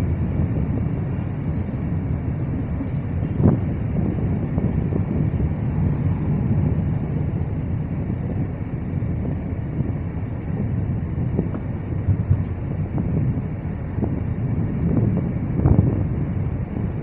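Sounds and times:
highway traffic rumble: 0.0s - 17.0s
wind on microphone: 0.0s - 17.0s.

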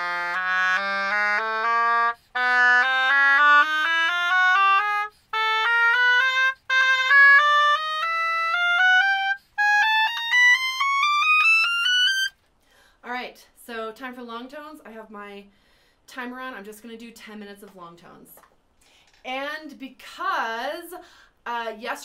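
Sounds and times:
bassoon playing a scale: 0.0s - 12.3s.

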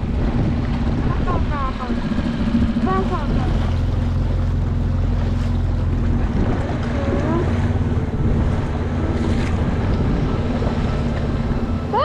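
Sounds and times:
outboard motor running: 0.0s - 12.0s
water washing against boat: 0.0s - 12.0s
wind on microphone: 0.0s - 12.0s.

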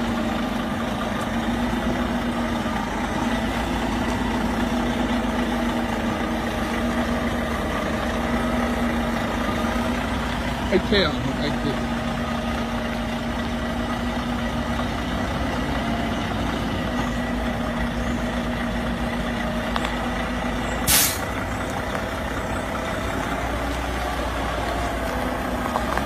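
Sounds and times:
diesel truck engine idling: 0.0s - 26.0s
air brake hiss: 20.8s - 21.3s.

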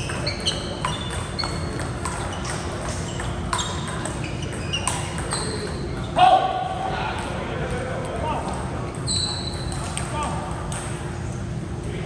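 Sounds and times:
shoes squeaking on court floor: 0.0s - 6.6s, 8.5s - 10.3s.

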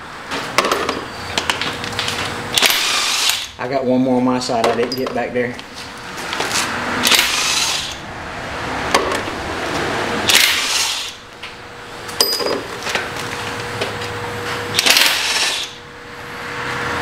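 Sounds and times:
air impact wrench bursts: 2.5s - 3.6s, 6.5s - 8.0s, 10.2s - 11.3s, 14.7s - 15.9s
tools clinking on metal: 4.6s - 5.4s, 12.2s - 13.0s.

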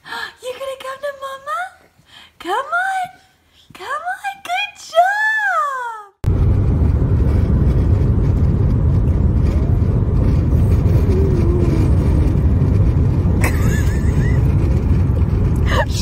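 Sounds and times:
car cabin low rumble: 6.3s - 16.0s.

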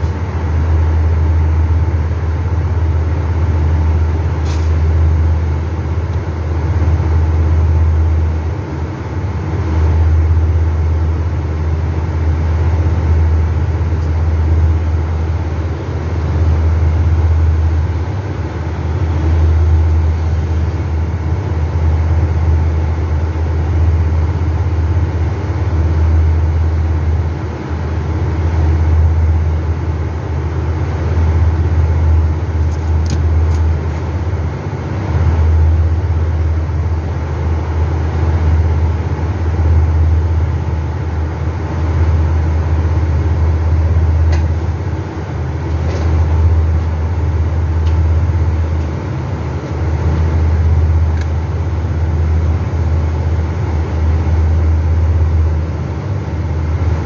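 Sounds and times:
chiller machine hum: 0.0s - 57.0s.

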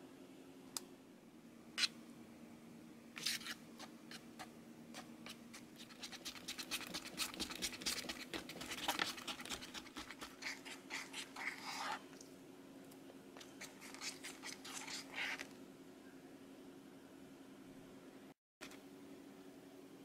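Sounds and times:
plastic spoon scraping plastic tray: 5.0s - 12.0s.

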